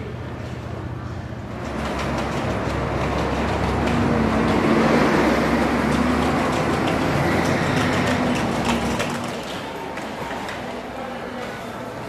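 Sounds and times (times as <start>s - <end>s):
road vehicle passing: 0.0s - 12.0s.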